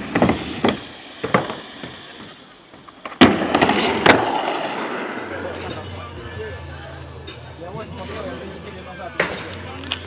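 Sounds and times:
skateboard wheels rolling: 0.0 - 10.0.

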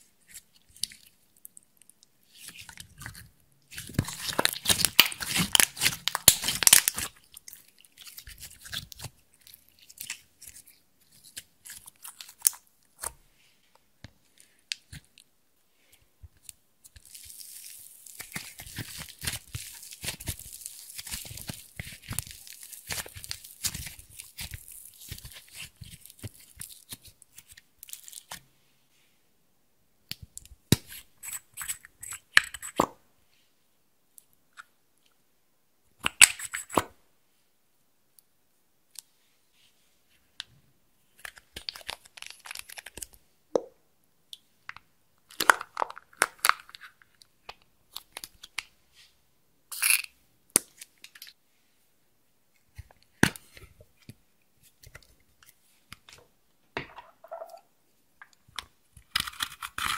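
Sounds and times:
slime squished by hand: 2.4 - 13.1.

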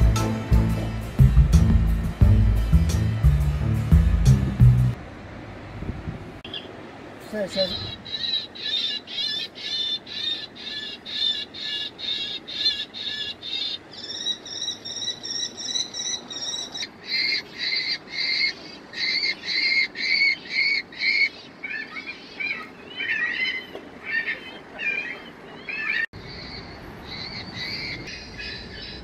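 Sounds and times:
loudspeaker bird calls: 6.5 - 14.4.

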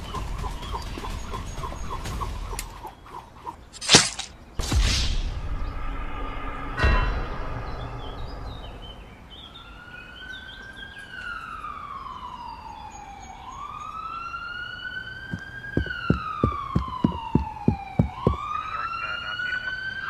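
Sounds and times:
police siren wailing: 9.6 - 20.0
heavy thuds: 15.3 - 18.5.

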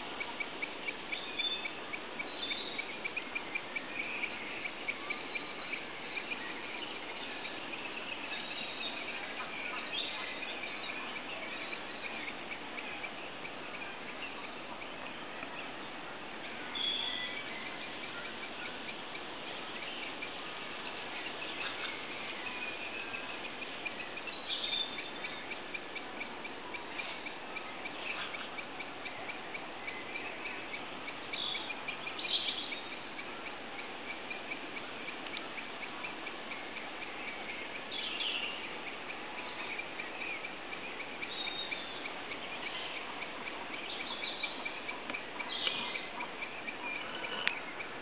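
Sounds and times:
small birds chirping: 0.0 - 48.0
steady outdoor hiss: 0.0 - 48.0.

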